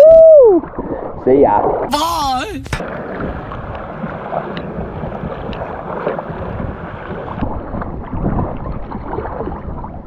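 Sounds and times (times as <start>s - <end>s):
paddle strokes splashing water: 2.8s - 9.7s
wind rumbling on microphone: 2.8s - 10.0s.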